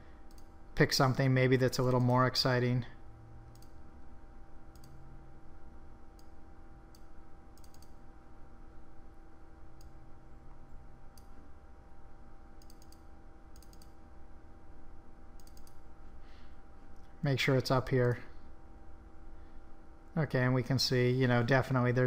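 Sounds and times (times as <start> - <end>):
faint electrical hum: 0.0 - 22.0
computer mouse clicking: 0.3 - 0.5, 3.5 - 3.8, 4.7 - 5.0, 6.2 - 8.0, 12.6 - 14.0, 15.4 - 15.8.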